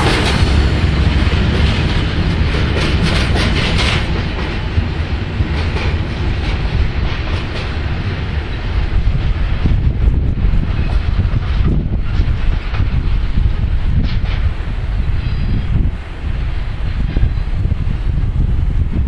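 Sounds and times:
wheels clattering over track: 0.0s - 8.0s.

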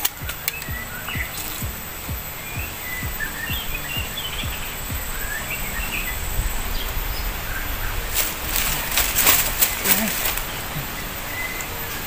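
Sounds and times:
music with thumping beat: 0.0s - 5.5s
birds chirping: 0.0s - 12.0s.

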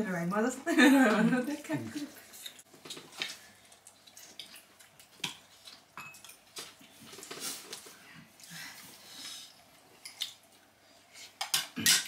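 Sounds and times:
quiet eating sounds: 0.6s - 12.0s
cutlery clinking on plates: 6.0s - 6.4s, 11.4s - 12.0s.

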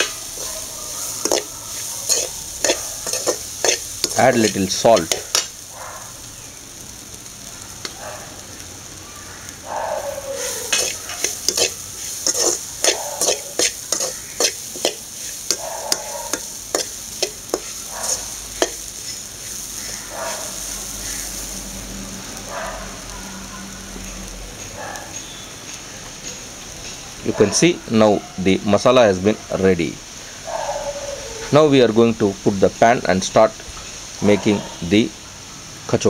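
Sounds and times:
metal spoon clinking in a pan: 0.0s - 5.6s, 10.4s - 19.3s
frying sizzle: 0.0s - 36.0s.

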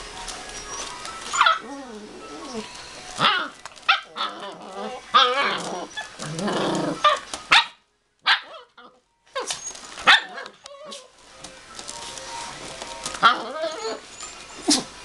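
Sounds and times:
puppies yipping and barking: 0.0s - 11.2s, 12.4s - 15.0s
puppy growl: 1.4s - 7.2s, 13.2s - 14.0s.

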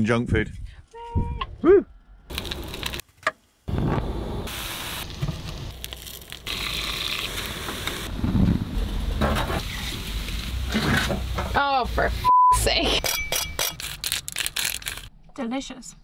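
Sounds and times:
food sizzling in a pan: 4.5s - 8.1s, 9.6s - 12.1s.

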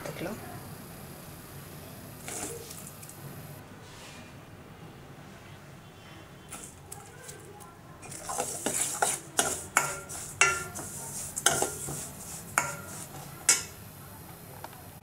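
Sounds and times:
spoon scraping dry mixture: 2.2s - 3.1s, 6.5s - 13.8s
spoon clinking against pan: 8.0s - 13.8s.

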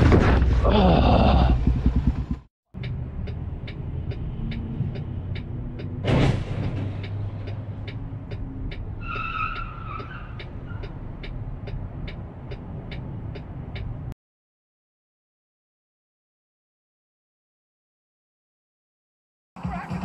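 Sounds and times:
steady ticking: 1.6s - 6.0s, 7.0s - 9.0s, 9.6s - 14.1s
car tires squealing: 8.9s - 11.0s.

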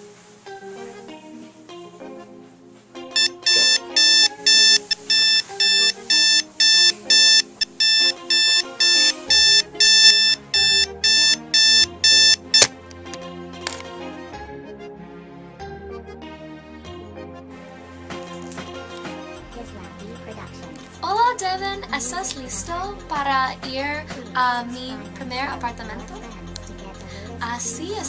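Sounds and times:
soft background music: 0.0s - 28.0s
alarm clock beeping: 3.2s - 12.8s
alarm switch click: 3.2s - 12.8s.

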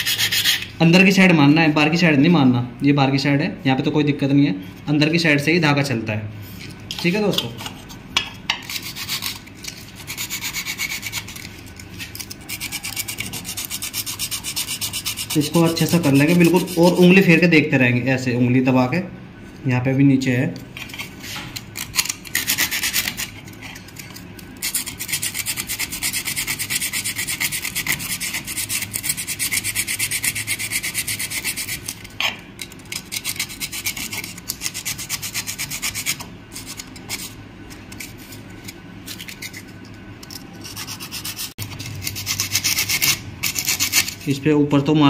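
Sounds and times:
sandpaper rasping on metal: 0.0s - 0.7s, 8.6s - 11.5s, 12.2s - 17.2s, 21.8s - 23.4s, 24.6s - 32.0s, 32.8s - 37.4s, 40.6s - 44.4s.

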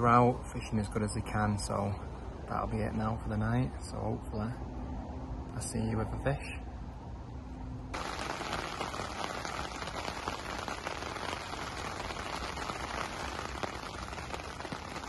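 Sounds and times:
rain pattering: 8.0s - 15.0s.

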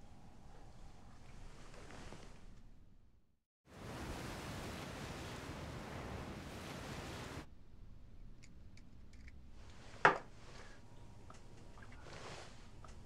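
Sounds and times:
sea and wind rushing: 3.7s - 7.5s
faint clicks: 11.2s - 13.0s.

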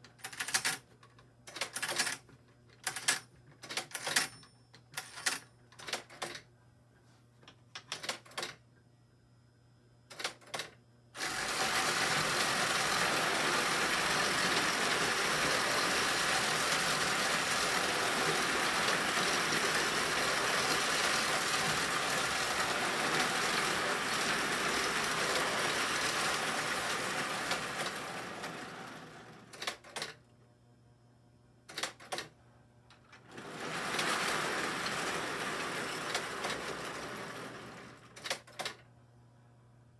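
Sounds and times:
clockwork toy train whirring: 11.2s - 29.5s, 33.3s - 38.0s.

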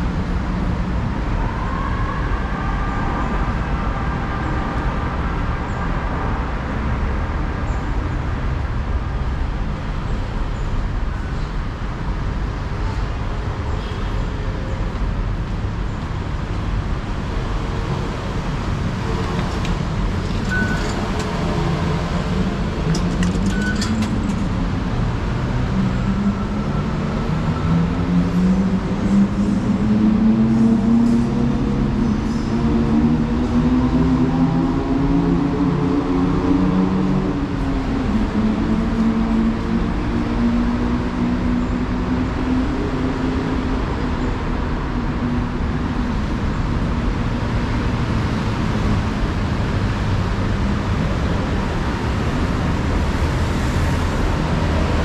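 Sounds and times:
low traffic drone: 0.0s - 55.0s
station concourse hum: 0.0s - 55.0s
fare gate electronic beeps: 20.4s - 21.1s.

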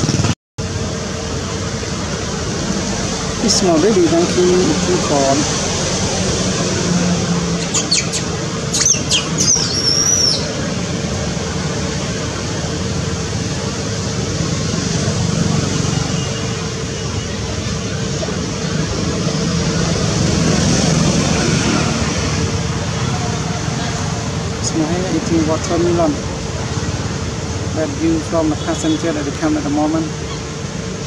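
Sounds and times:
town traffic hum: 0.0s - 31.0s
high sliding chirps: 7.5s - 10.7s.

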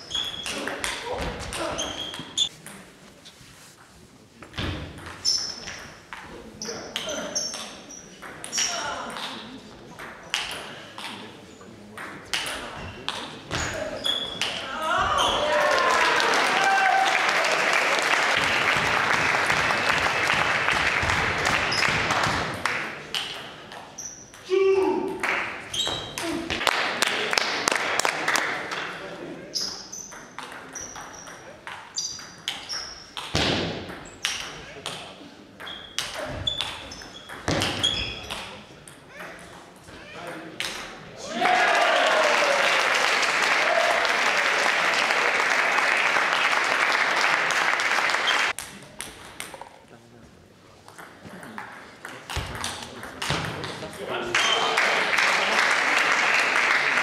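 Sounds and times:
spectators clapping: 15.4s - 23.0s, 25.2s - 25.6s, 26.6s - 28.9s, 41.3s - 48.6s, 54.3s - 57.0s.

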